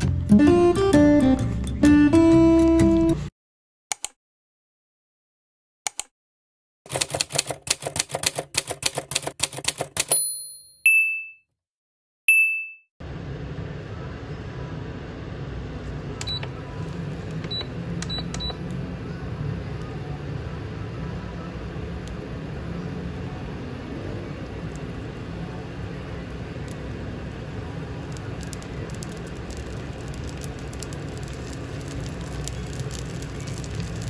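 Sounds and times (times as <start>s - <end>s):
strummed guitar music: 0.0s - 3.2s
typewriter keystroke clicks: 6.9s - 10.2s
typewriter bell dings: 9.9s - 11.4s, 12.3s - 12.8s
dumpling frying in oil: 21.6s - 34.0s.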